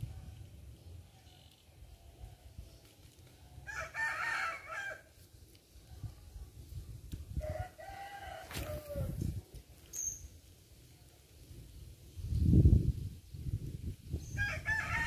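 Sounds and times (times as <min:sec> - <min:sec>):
rooster crowing: 0:03.6 - 0:05.1, 0:07.4 - 0:09.2, 0:14.4 - 0:15.0.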